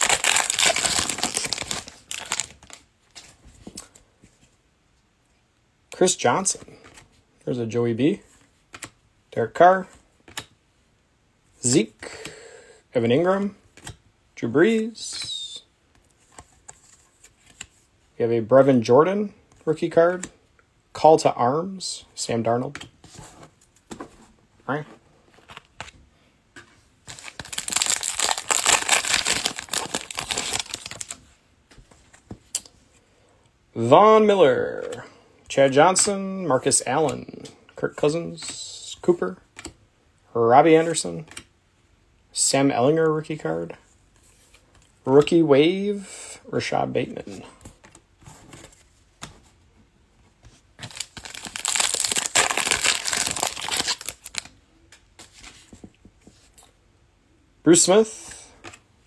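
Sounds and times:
wrapper being torn and crinkled: 0.0 - 2.8, 27.1 - 31.2, 50.8 - 54.5.

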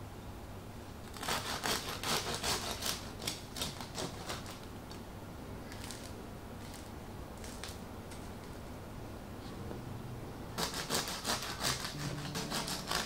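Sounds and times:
bread knife sawing crusty loaf: 1.2 - 4.5, 10.6 - 13.0.

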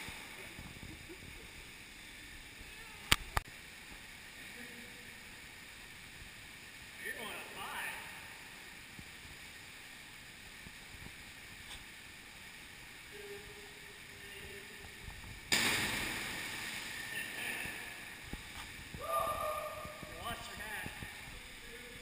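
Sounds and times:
person splashing into water: 15.5 - 17.1.

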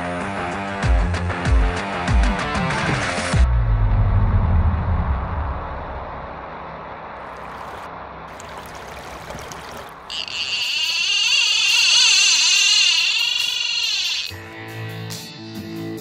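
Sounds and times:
high wavering buzzing effect: 10.1 - 14.4.

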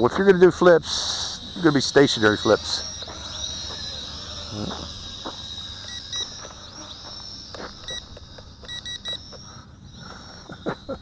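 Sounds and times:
toy quadcopter motors whining: 0.0 - 11.0
short electronic beeps: 4.4 - 10.6.

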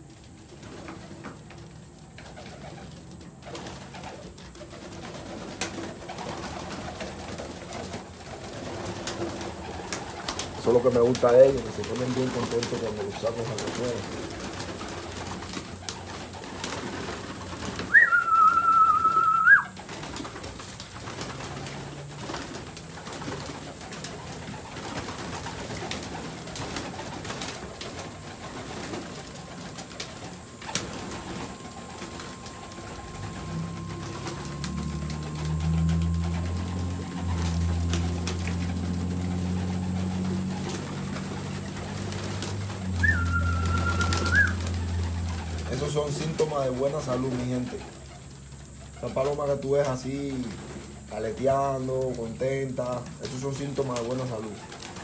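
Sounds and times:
pigeons cooing: 0.0 - 55.0
pigeon wing flaps: 0.1 - 55.0
high whistled note: 17.9 - 19.8, 31.4 - 38.2, 43.0 - 44.6.

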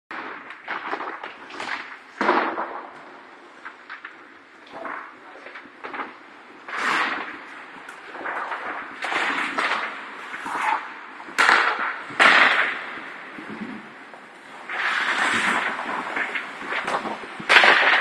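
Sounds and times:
skates scraping over ice: 6.7 - 18.0
hockey sticks and puck cracking: 6.8 - 13.9, 14.6 - 18.0.

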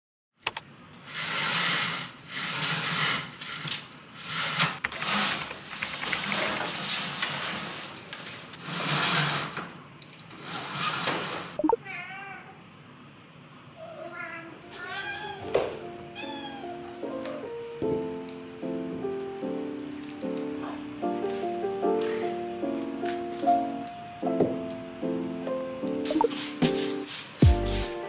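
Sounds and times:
roller blind pulled up by cord: 1.0 - 11.6
cat meowing: 11.7 - 12.6, 13.8 - 17.5.

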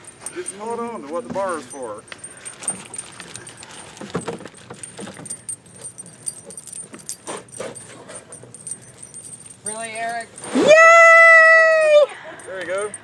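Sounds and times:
light metallic jingling: 0.0 - 13.0
knocks and rustles in plastic kayak: 2.6 - 5.4.

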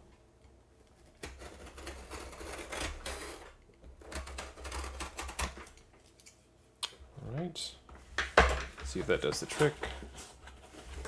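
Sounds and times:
scissors cutting cardboard: 1.0 - 5.8.

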